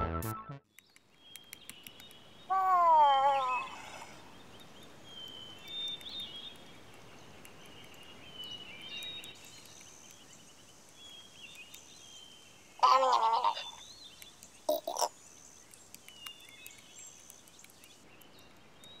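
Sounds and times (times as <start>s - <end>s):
birds chirping: 0.7s - 19.0s
wavering pitched cry: 12.8s - 13.8s.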